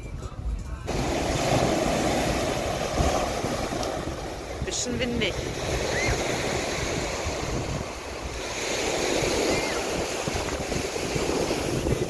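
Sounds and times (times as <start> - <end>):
wind buffeting microphone: 0.0 - 12.0
surf breaking on beach: 0.9 - 12.0.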